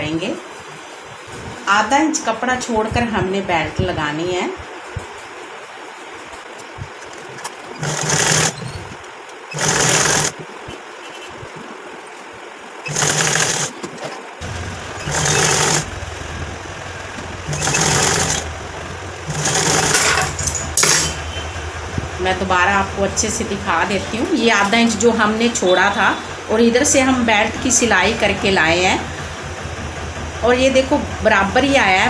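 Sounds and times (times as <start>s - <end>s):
sewing machine stitching: 7.7s - 8.9s, 9.5s - 10.4s, 12.8s - 16.0s, 16.9s - 21.0s.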